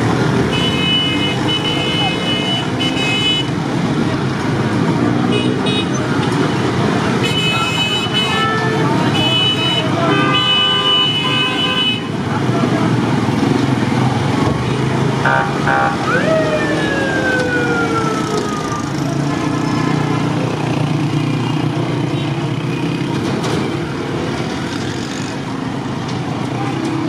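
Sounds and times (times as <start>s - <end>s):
motorcycle engines: 0.0s - 27.0s
street crowd din: 0.0s - 27.0s
horn toots: 15.2s - 16.3s
siren wail: 15.2s - 19.2s.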